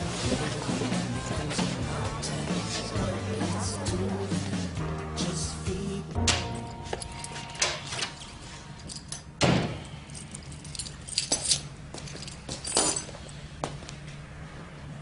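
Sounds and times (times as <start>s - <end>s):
keys jangling: 8.8s - 13.4s.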